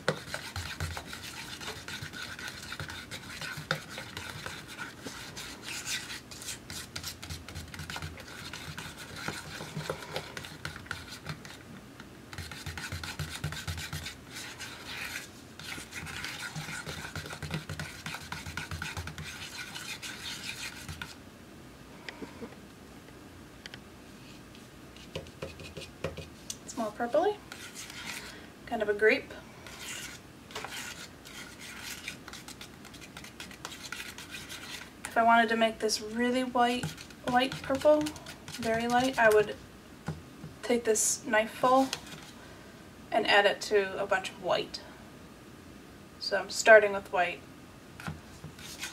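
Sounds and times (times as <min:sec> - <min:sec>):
palette knife scraping paint in cup: 0:00.0 - 0:11.6, 0:12.3 - 0:21.2, 0:26.8 - 0:28.3, 0:29.6 - 0:35.2, 0:35.9 - 0:39.5, 0:48.5 - 0:48.9.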